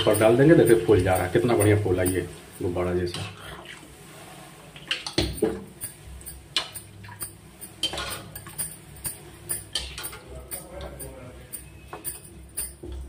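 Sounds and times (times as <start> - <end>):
oil splashing: 0.0 - 10.8
metal spoon scraping a pan: 3.1 - 12.9.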